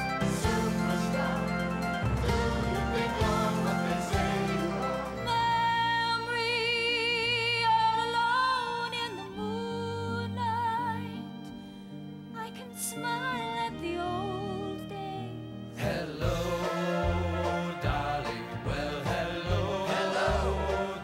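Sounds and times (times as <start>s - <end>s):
upbeat ensemble show music: 0.0s - 6.4s, 15.8s - 21.0s
woman singing with vibrato: 5.1s - 11.2s.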